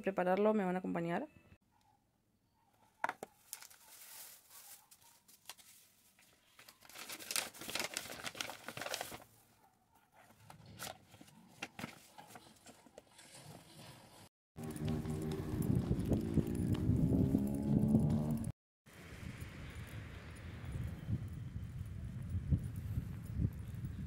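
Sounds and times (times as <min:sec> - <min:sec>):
paper and plastic rustling: 0:03.3 - 0:09.4, 0:10.2 - 0:14.2.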